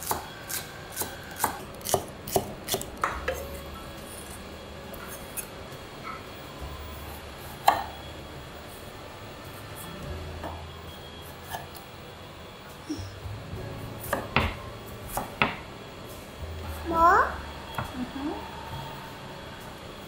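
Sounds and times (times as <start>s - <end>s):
knife chopping on wooden board: 0.0s - 3.4s, 14.1s - 15.6s.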